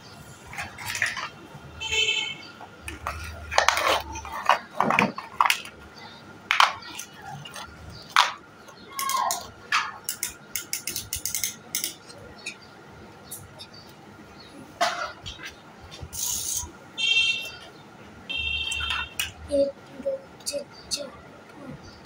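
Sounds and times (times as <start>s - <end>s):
plastic building blocks clicking: 0.5s - 1.4s, 2.8s - 5.8s, 6.5s - 8.4s, 9.0s - 12.6s.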